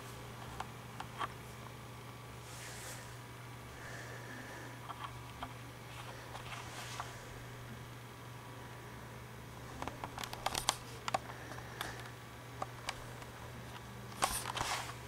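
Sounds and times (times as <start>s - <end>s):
steady low hum: 0.0s - 15.0s
small clicks and rustles: 9.7s - 15.0s.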